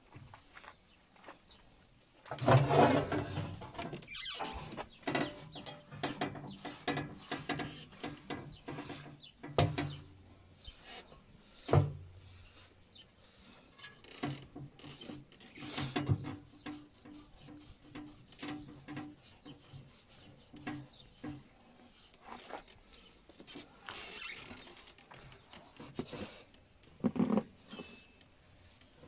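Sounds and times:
rag rubbing in metal housing: 2.4 - 22.4.

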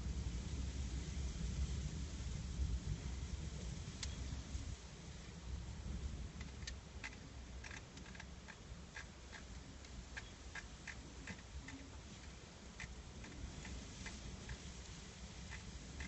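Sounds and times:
low steady rumble: 0.0 - 16.0
light irregular ticks: 4.0 - 4.2, 6.4 - 16.0.

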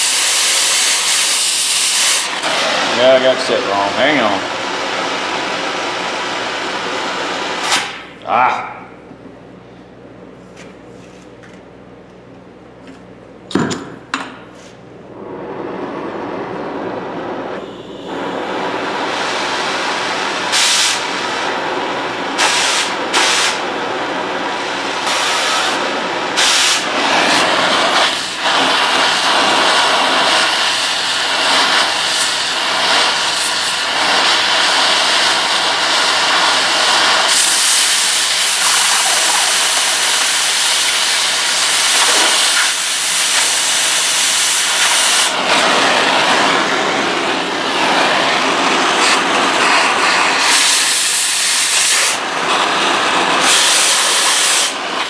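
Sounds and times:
cutting torch hissing: 0.0 - 8.3, 15.1 - 55.0
sharp pop: 7.6 - 8.1.

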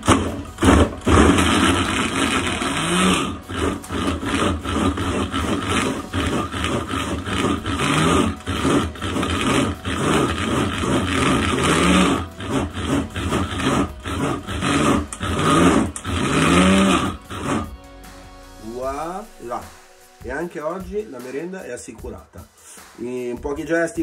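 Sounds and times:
electric food chopper running: 0.0 - 17.8.

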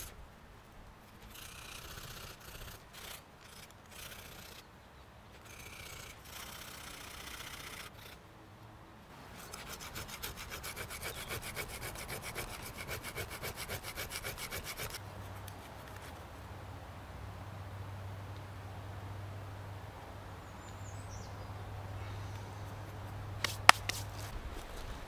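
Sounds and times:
metal wire scraping on rock: 1.2 - 4.7, 9.3 - 16.2.

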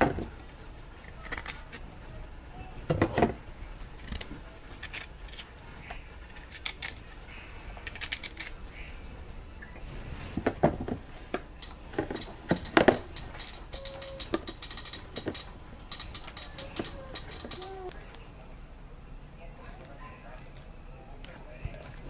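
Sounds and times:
knife and dishes clicking: 11.6 - 17.8.

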